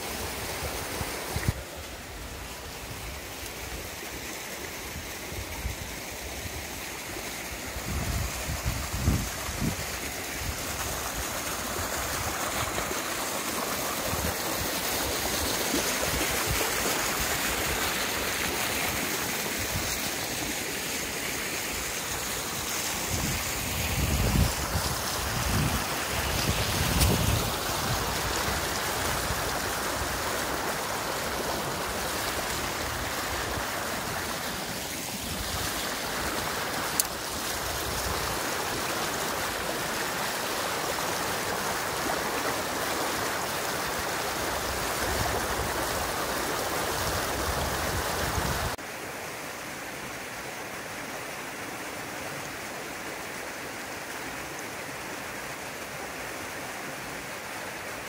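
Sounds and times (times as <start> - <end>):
water rushing: 0.0 - 58.0
wind buffeting microphone: 7.8 - 10.8.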